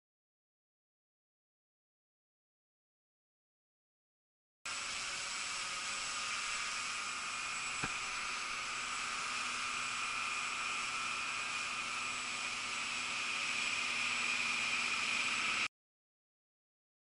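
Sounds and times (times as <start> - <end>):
quadcopter motors and propellers: 4.7 - 15.7.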